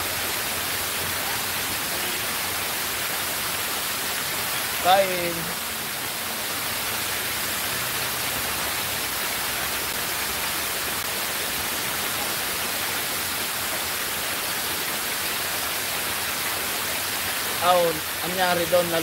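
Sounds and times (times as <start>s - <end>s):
water rushing down fountain: 0.0s - 19.0s.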